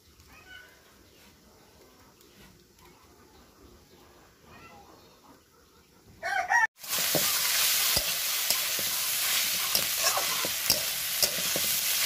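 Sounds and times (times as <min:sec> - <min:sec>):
vegetables sizzling in oil: 0:06.8 - 0:12.0
metal spatula scraping pan: 0:06.9 - 0:12.0.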